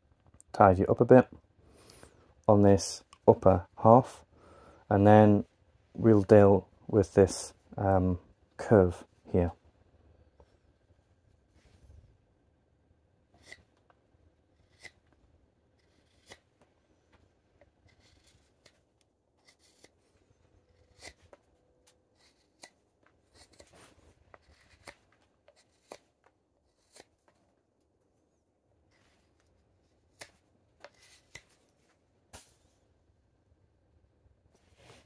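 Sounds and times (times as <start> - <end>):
knife scraping wood: 13.3 - 16.7, 17.6 - 27.4, 28.9 - 31.8
knife cutting wood shavings: 13.4 - 13.9, 14.5 - 16.6, 17.6 - 27.2, 28.9 - 31.6.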